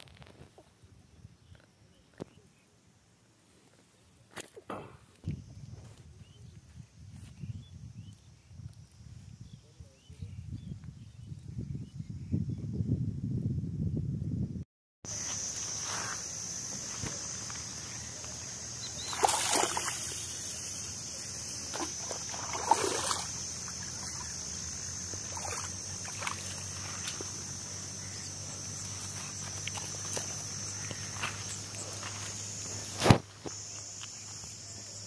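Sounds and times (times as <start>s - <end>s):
high-pitched insect drone: 15.1s - 35.0s.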